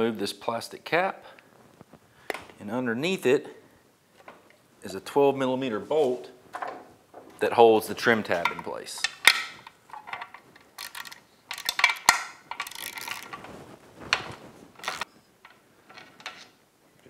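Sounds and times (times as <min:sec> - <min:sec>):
ratchet clicking: 0:10.8 - 0:13.3, 0:14.8 - 0:15.0.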